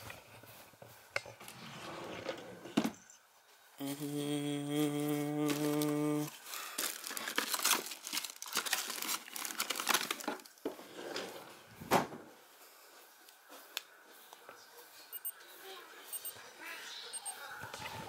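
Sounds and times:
packaging crinkling and rustling: 0:05.0 - 0:10.8.

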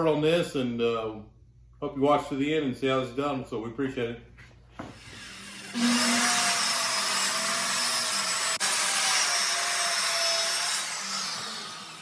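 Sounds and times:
circular saw cutting plywood: 0:04.8 - 0:12.0.

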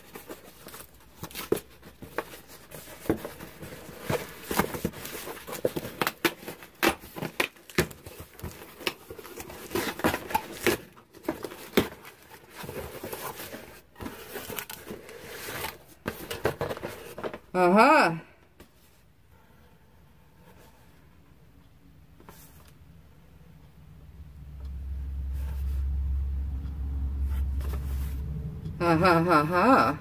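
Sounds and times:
cardboard rustling and scraping: 0:00.0 - 0:17.5, 0:25.3 - 0:25.8, 0:27.2 - 0:28.2
cardboard box being torn open: 0:03.9 - 0:13.6.

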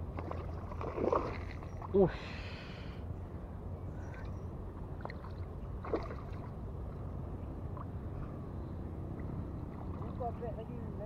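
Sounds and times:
wind rumble on microphone: 0:03.2 - 0:11.0.

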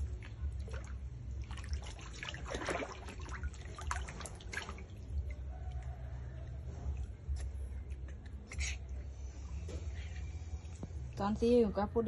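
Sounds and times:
otter splashing in water: 0:00.0 - 0:05.8.

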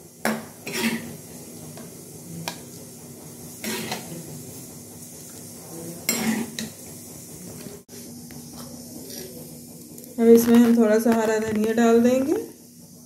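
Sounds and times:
metal spoon scraping a pan: 0:00.6 - 0:01.2, 0:03.6 - 0:04.1, 0:06.1 - 0:06.7.

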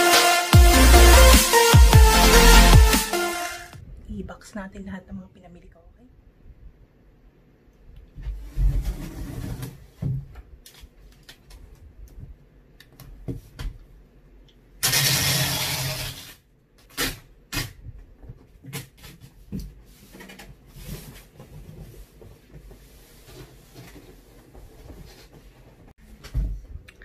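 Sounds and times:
packing tape screeching off dispenser: 0:14.8 - 0:17.2.

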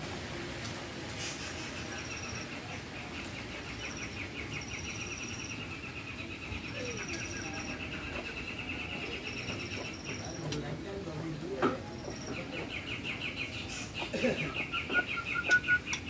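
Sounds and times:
songbird trilling: 0:01.8 - 0:10.7, 0:11.9 - 0:16.0
high whistled bird notes: 0:12.0 - 0:16.0.

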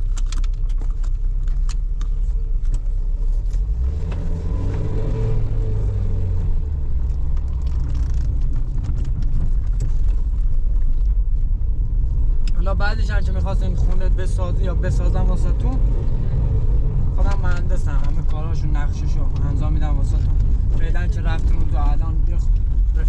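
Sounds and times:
car engine rumble: 0:00.0 - 0:23.0
road noise: 0:00.0 - 0:23.0.

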